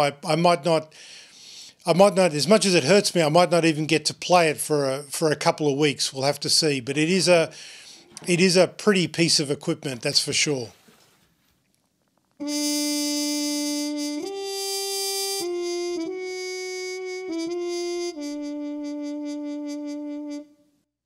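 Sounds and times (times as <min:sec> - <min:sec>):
saxophone-like synth melody: 0:12.4 - 0:20.6.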